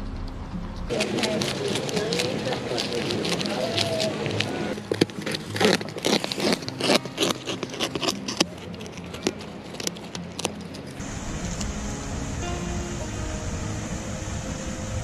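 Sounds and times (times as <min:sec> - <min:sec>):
beaver gnawing wood: 0:00.8 - 0:11.8
steady hum: 0:10.8 - 0:15.0.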